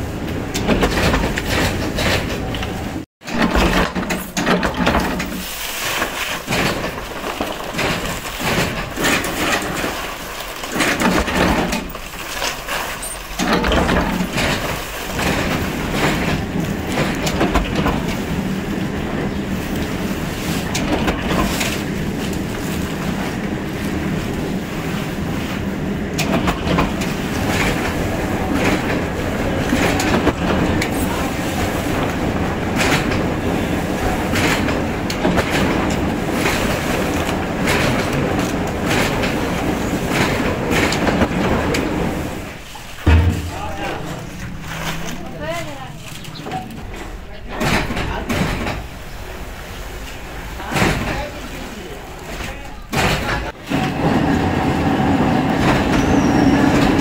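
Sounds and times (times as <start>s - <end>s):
machinery clacking and rattling: 0.0s - 57.0s
machinery low hum: 13.4s - 52.4s.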